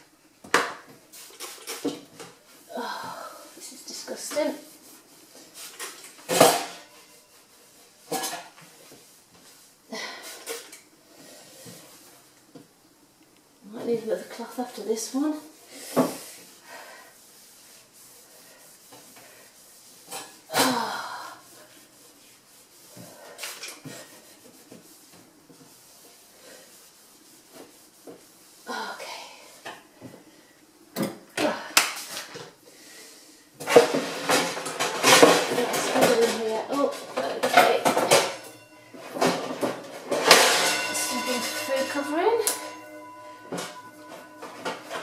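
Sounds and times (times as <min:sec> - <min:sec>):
cloth wiping cupboard: 0:02.4 - 0:06.1, 0:13.8 - 0:20.6, 0:21.5 - 0:29.0, 0:40.9 - 0:45.0
kitchenware knocking and clattering: 0:06.3 - 0:07.0, 0:33.6 - 0:45.0.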